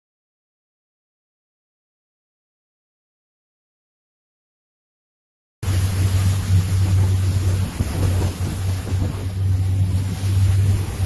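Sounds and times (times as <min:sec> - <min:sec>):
motorboat engine drone: 0:05.6 - 0:11.0
water rushing along hull: 0:05.6 - 0:11.0
wind on microphone: 0:05.6 - 0:11.0.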